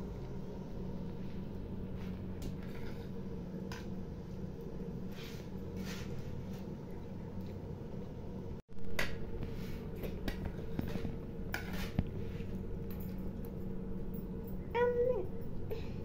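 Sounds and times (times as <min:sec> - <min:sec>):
low hum: 0:00.0 - 0:16.0
spoon scraping a plate: 0:11.5 - 0:12.0.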